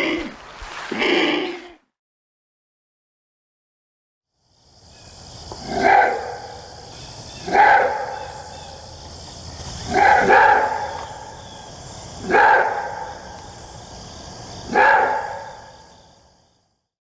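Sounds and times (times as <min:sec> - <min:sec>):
wolf barking: 0:05.6 - 0:06.6, 0:07.4 - 0:08.4, 0:09.8 - 0:11.2, 0:12.2 - 0:13.2, 0:14.7 - 0:15.6.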